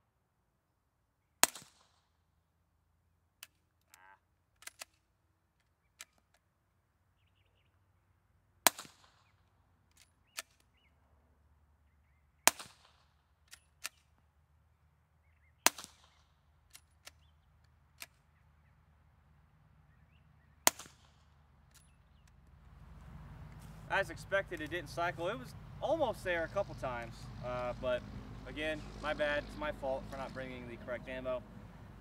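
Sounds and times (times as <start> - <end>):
suppressed pistol shots: 1.4 - 1.9, 8.6 - 9.3, 12.4 - 14.0, 15.6 - 17.2, 20.6 - 21.9
quiet metallic clicks: 3.4 - 6.5, 15.7 - 18.3, 20.7 - 32.0.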